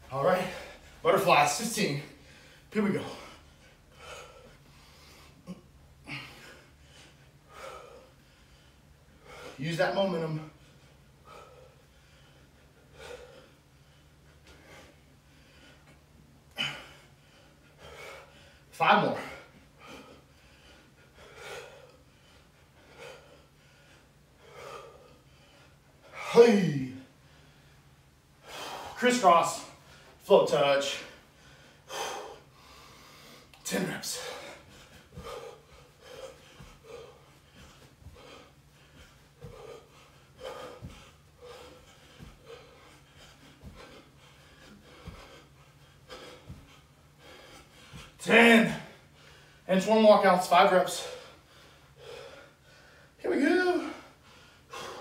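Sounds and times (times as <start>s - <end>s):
man breathing hard: 0.1s - 55.0s
feet thumping on carpet: 34.7s - 39.8s, 40.4s - 45.5s.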